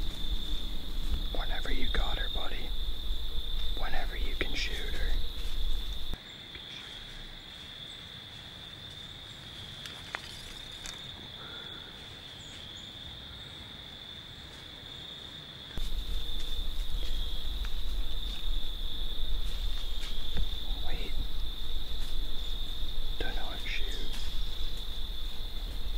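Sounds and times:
low rumble: 0.0 - 6.2, 15.8 - 25.9
insect chorus trilling: 0.0 - 25.9.

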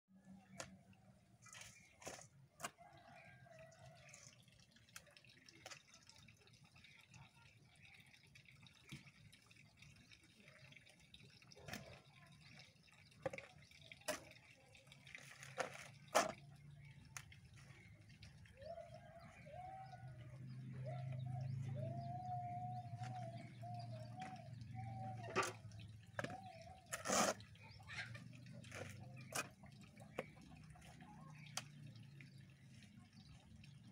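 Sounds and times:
hoe digging into soil: 26.2 - 27.6.

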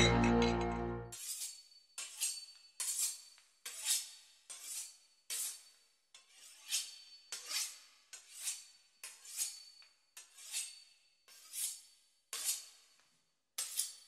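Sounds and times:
knife sawing through crisp pastry: 2.0 - 5.6, 6.2 - 12.8.

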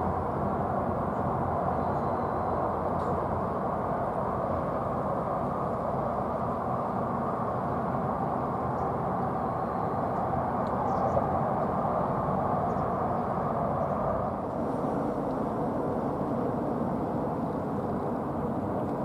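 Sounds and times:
low background rumble: 10.4 - 19.0.

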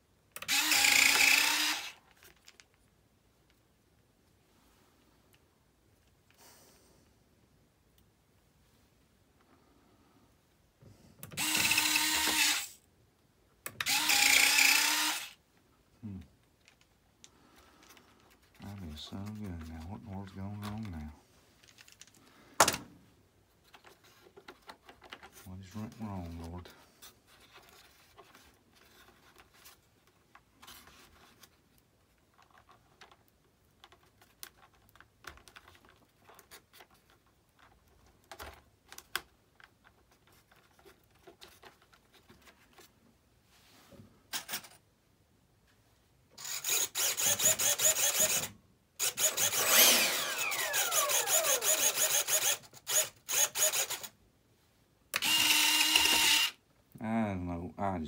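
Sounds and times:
landing gear motors whirring: 46.4 - 54.1.

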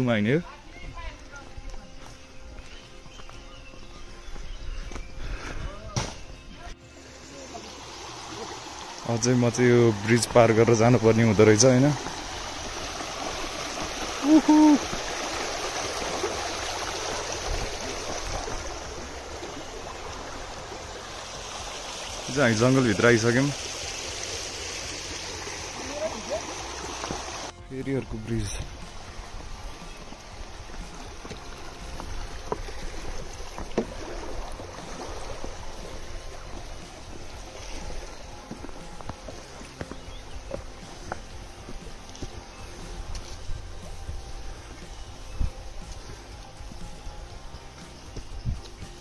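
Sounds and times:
footsteps on a footbridge: 0.8 - 6.3, 28.6 - 34.1, 36.4 - 45.0
stream water flowing: 6.3 - 49.0.

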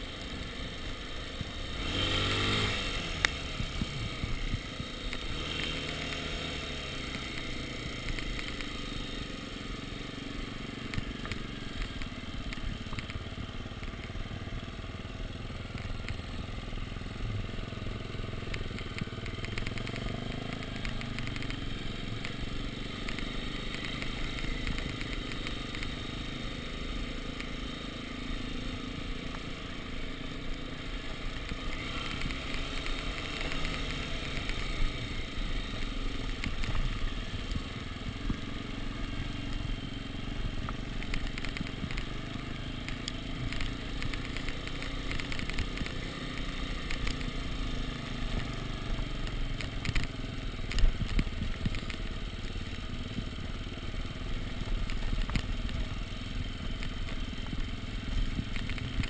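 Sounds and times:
dirt bike engine running: 0.0 - 59.0
bike rattling on cobbles: 18.3 - 25.9, 30.8 - 38.6, 39.2 - 59.0.

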